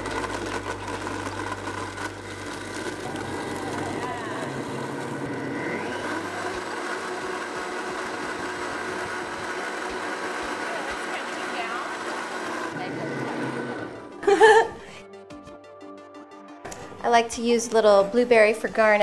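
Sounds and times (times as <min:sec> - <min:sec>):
blender crushing ice: 0:00.0 - 0:14.1.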